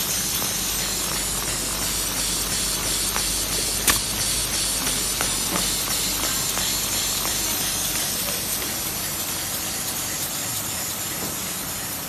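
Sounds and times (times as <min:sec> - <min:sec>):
box forming machine rushing: 0:01.3 - 0:06.7
sharp click: 0:03.8 - 0:04.2.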